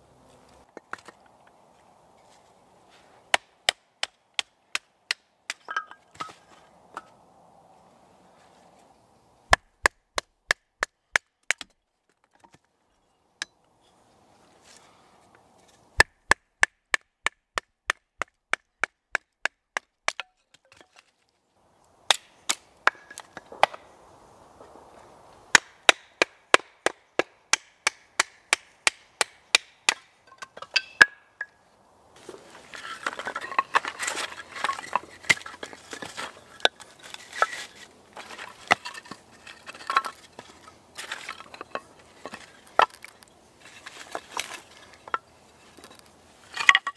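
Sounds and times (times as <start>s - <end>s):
sticks clattering on leaf litter: 32.2s - 46.9s.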